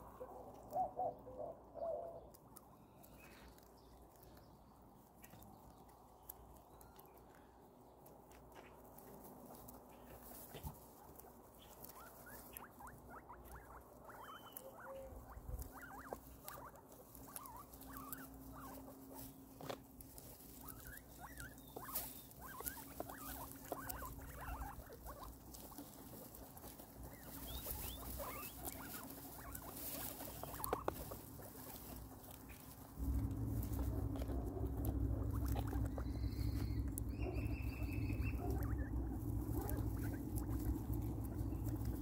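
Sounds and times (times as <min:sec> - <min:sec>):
guinea pigs chewing: 0:00.0 - 0:42.0
small squeaky mouth noises: 0:11.6 - 0:19.4, 0:20.7 - 0:25.9.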